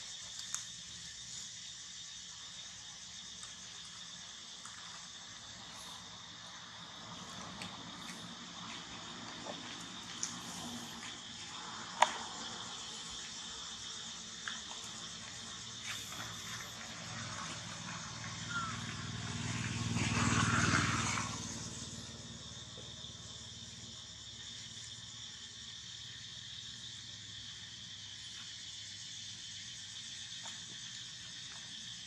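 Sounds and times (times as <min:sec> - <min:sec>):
high hiss of outdoor ambience: 0:00.0 - 0:32.0
motor vehicle passing: 0:05.2 - 0:13.1, 0:14.8 - 0:23.6.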